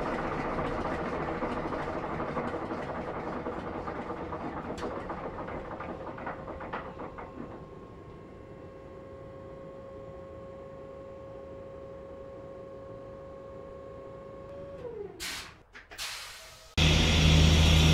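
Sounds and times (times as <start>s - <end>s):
diesel engine running down: 16.8s - 17.9s.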